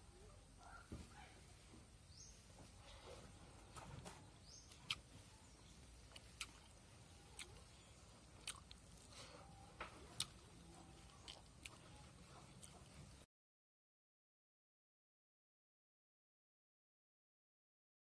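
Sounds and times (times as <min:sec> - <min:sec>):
person chewing: 0:04.7 - 0:05.2, 0:06.0 - 0:13.2.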